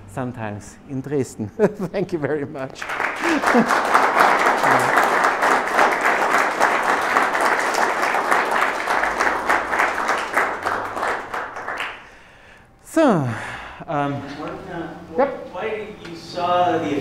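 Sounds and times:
audience applauding: 2.8 - 12.2.

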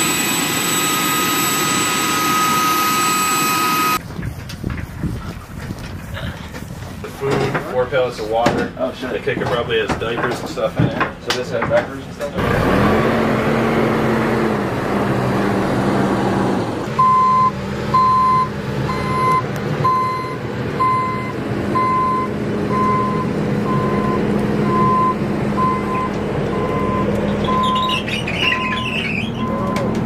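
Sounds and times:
engine running steadily: 0.0 - 4.0
reversing alarm beeping: 0.0 - 4.0, 17.0 - 30.0.

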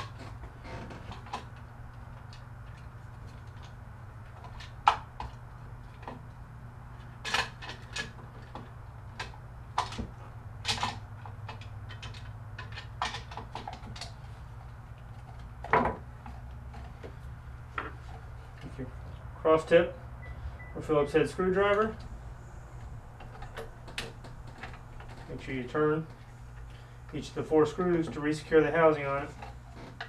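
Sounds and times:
low steady hum: 0.0 - 30.0
plastic parts clicking and knocking: 7.0 - 14.2.

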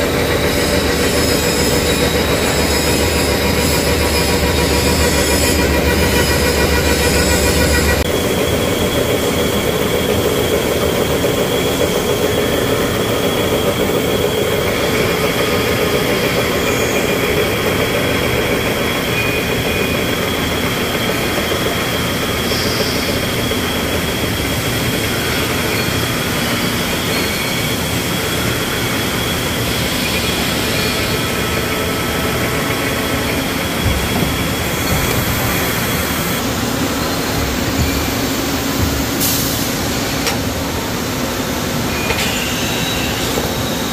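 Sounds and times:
milling machine cutting: 0.0 - 43.9.

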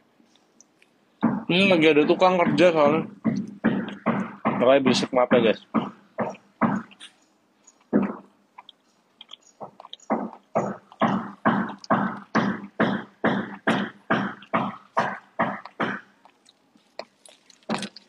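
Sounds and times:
rapid hammering: 1.2 - 7.0, 7.9 - 8.3, 9.6 - 16.1.

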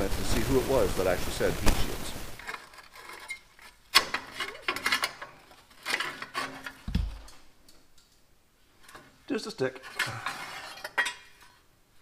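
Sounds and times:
metal heat shield scraping and clinking: 2.4 - 7.4, 8.7 - 11.7.

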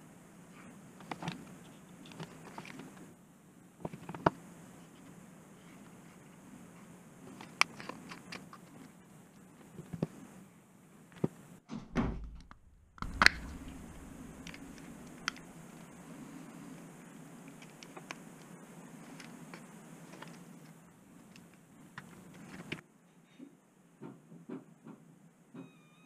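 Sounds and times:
low steady hum: 0.0 - 22.9
small plastic clicks and handling: 1.0 - 3.0, 3.8 - 5.1, 7.3 - 8.9, 17.5 - 22.8
plastic case cracking: 12.2 - 15.5.

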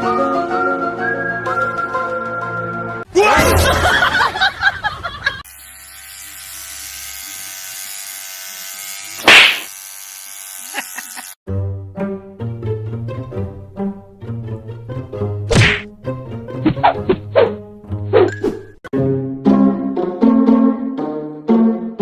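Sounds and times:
electric toothbrush buzzing: 5.4 - 11.4.

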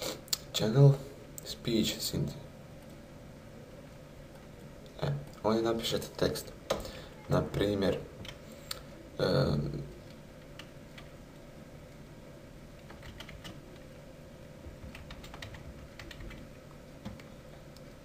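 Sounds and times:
keyboard typing: 12.8 - 13.9, 14.7 - 17.9.

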